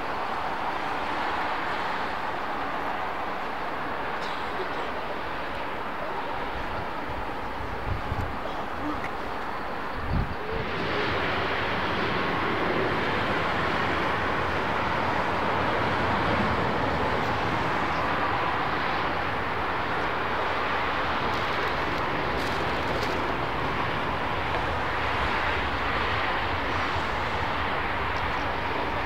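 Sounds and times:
jet engines taxiing: 0:00.0 - 0:29.0.

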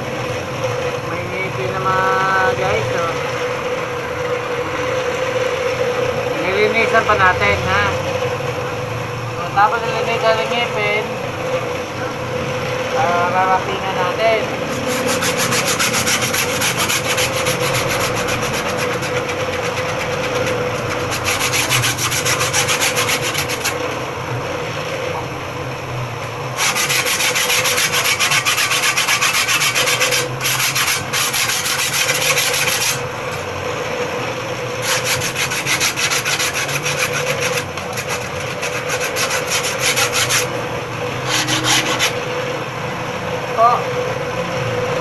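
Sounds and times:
bench grinder humming: 0:00.0 - 0:45.0
saw blade grinding rasp: 0:14.6 - 0:23.8, 0:26.6 - 0:33.5, 0:34.8 - 0:40.6, 0:41.2 - 0:42.2.

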